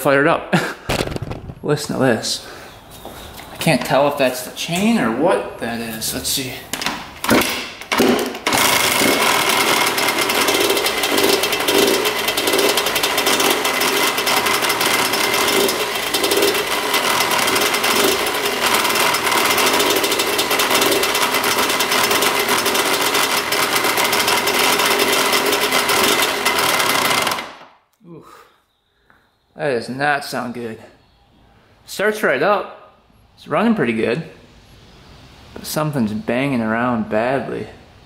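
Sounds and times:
engine rattling and banging: 0:07.2 - 0:27.5
dirt bike engine starting: 0:07.2 - 0:27.7.

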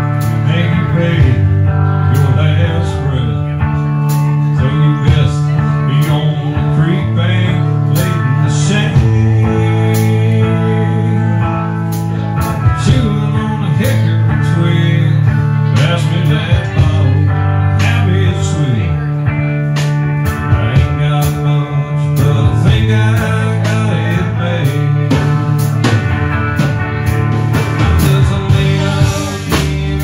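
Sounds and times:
guitar bending notes: 0:00.0 - 0:30.0
live country band playing: 0:00.0 - 0:30.0
drum and cymbal hits: 0:25.1 - 0:30.0.

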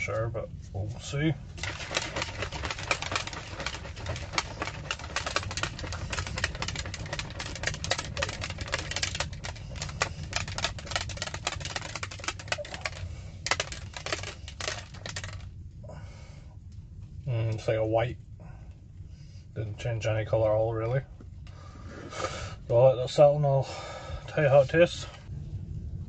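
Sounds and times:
shaker bottle rattling: 0:01.5 - 0:15.5.

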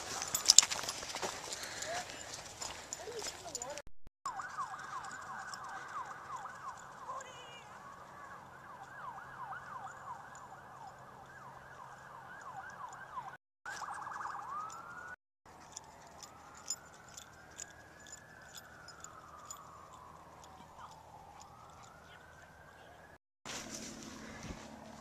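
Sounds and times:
faint emergency siren: 0:01.2 - 0:25.0.

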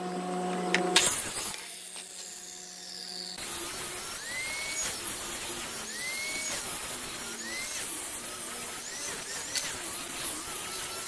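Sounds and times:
angle grinder whining: 0:00.0 - 0:11.0.

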